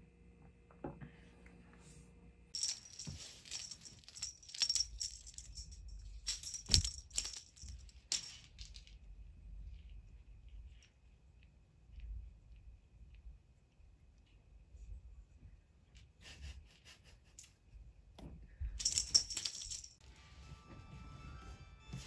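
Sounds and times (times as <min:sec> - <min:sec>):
cat toy jingling rattle: 0:02.6 - 0:08.9, 0:18.8 - 0:20.0.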